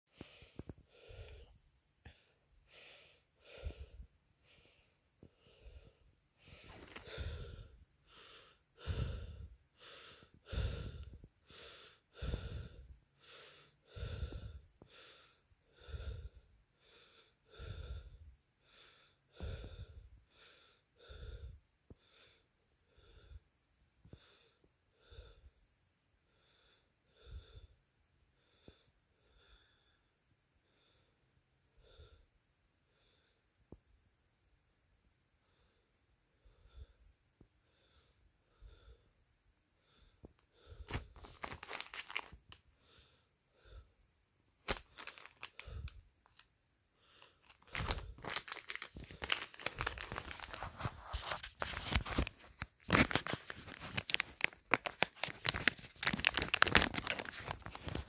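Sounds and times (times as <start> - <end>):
person breathing: 0.1 - 25.6, 26.2 - 33.7, 35.4 - 58.0.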